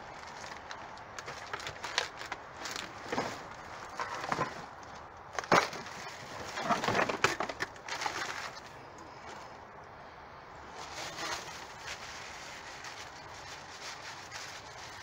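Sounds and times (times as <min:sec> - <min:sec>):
packaging crinkling: 0:00.1 - 0:04.6.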